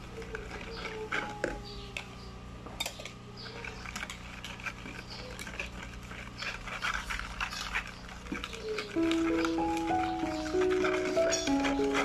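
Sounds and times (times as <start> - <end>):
whisk beating in a bowl: 3.8 - 12.0.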